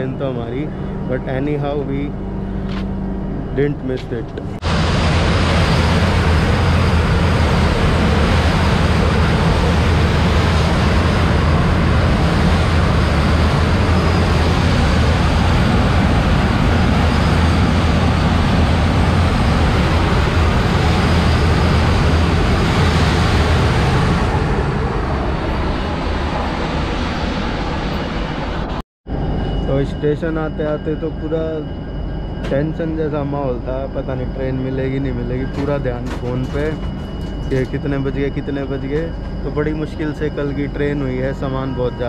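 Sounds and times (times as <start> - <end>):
train wind and wheel noise: 0.0 - 42.0.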